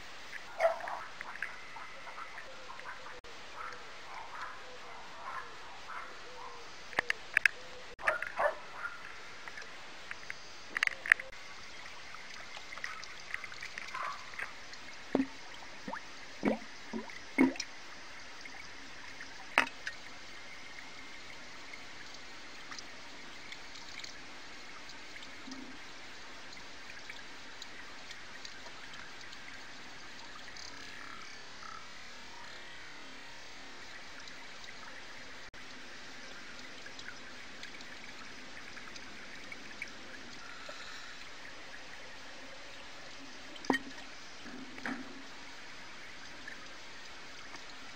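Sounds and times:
faint hiss: 0:00.0 - 0:47.9
pond water trickling and dripping: 0:00.0 - 0:47.9.

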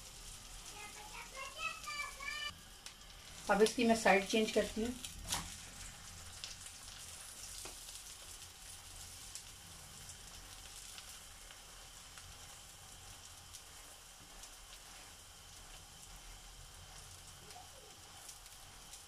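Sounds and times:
flatbread sizzling on a pan: 0:00.0 - 0:19.0
brush spreading oil: 0:11.7 - 0:19.0.

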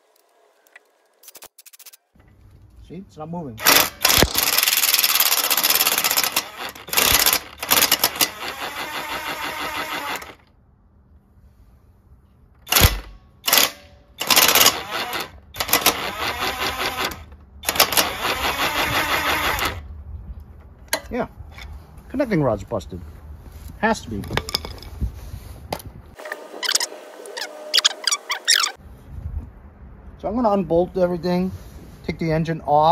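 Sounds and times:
lawn mower engine turning over: 0:03.6 - 0:10.5, 0:12.6 - 0:19.9.

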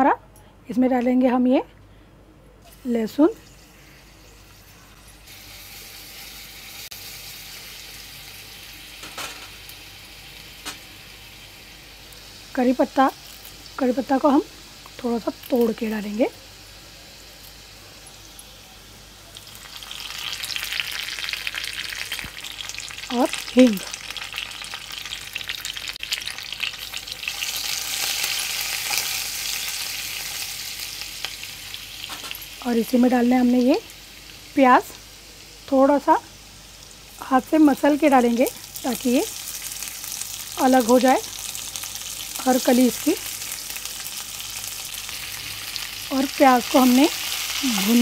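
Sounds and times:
garlic sizzling in hot oil: 0:02.7 - 0:48.0.

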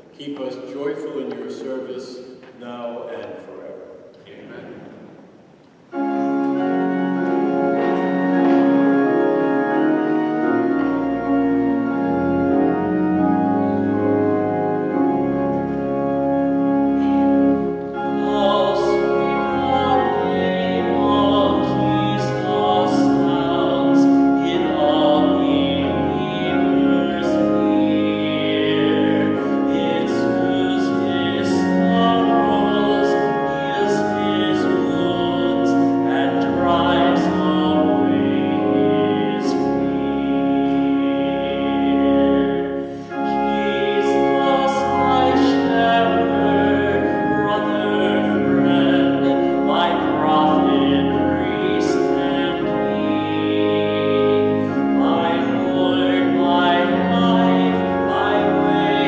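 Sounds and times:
church organ chords: 0:00.0 - 0:59.0
deep organ pedal bass notes: 0:05.9 - 0:59.0
solo voice singing: 0:18.0 - 0:59.0.

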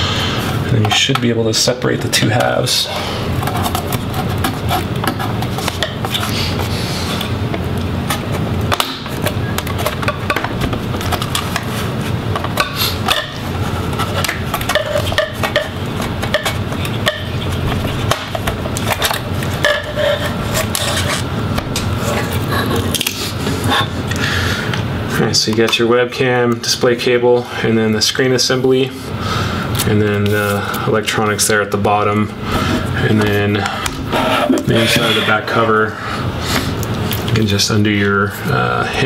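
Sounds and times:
tool scraping along plastic: 0:02.1 - 0:07.4, 0:09.2 - 0:21.3, 0:32.5 - 0:35.8.

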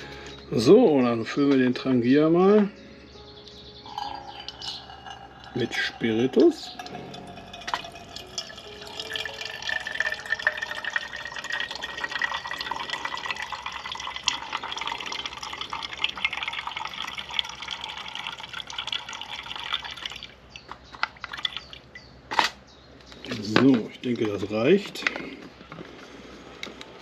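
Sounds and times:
liquid pouring from a bottle: 0:03.9 - 0:20.4, 0:21.3 - 0:21.9.

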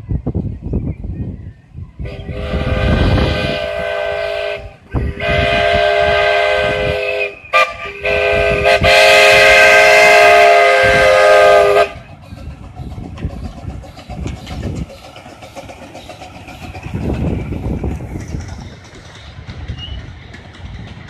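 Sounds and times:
train running noise: 0:00.0 - 0:21.0
steam locomotive chime whistle: 0:02.0 - 0:12.5.

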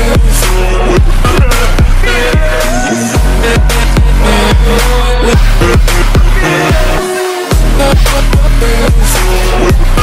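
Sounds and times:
dubstep electronic dance music: 0:00.0 - 0:10.0.

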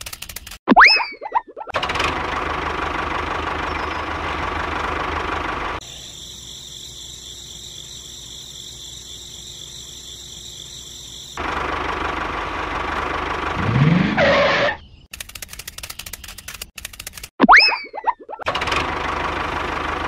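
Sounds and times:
small tractor engine chugging: 0:01.7 - 0:07.9, 0:10.4 - 0:13.6, 0:18.5 - 0:20.0.

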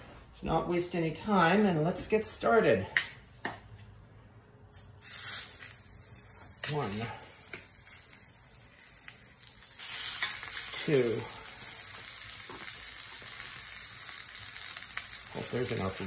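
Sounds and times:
chicken sizzling in a pan: 0:05.0 - 0:16.0.

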